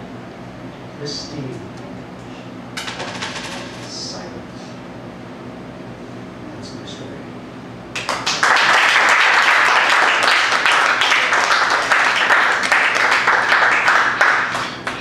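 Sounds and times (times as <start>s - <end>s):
audience applauding: 8.0s - 15.0s.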